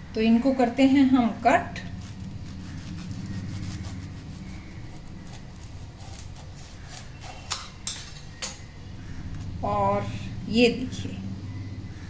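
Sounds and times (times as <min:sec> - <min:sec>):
steady low hum: 0:00.0 - 0:12.0
knife cutting crisp toast: 0:02.0 - 0:08.6.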